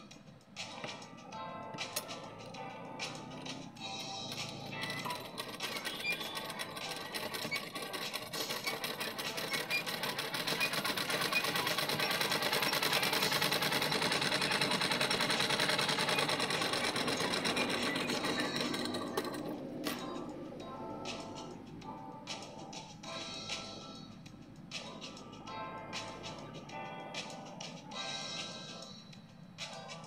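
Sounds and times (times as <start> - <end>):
sewing machine stitching: 3.2 - 20.2.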